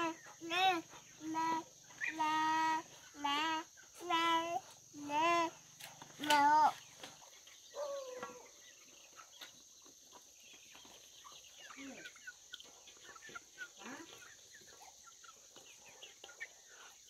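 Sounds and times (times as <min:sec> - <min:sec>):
chickens clucking: 0:00.0 - 0:17.0
chicks peeping: 0:00.0 - 0:17.0.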